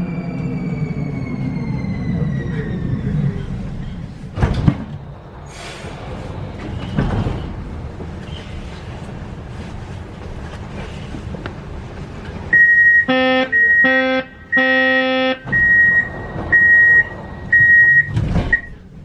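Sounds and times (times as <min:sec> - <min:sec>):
train doors opening thud: 0:04.3 - 0:05.0, 0:06.5 - 0:08.2, 0:15.4 - 0:18.9.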